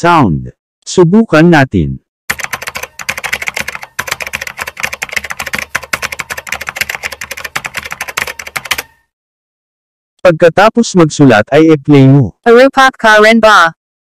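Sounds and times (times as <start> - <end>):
rapid keyboard typing: 2.3 - 9.1.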